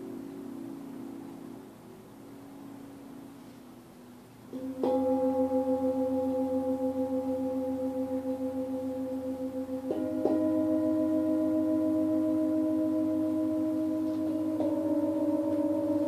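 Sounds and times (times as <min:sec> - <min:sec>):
singing bowls ringing: 0:04.5 - 0:16.0.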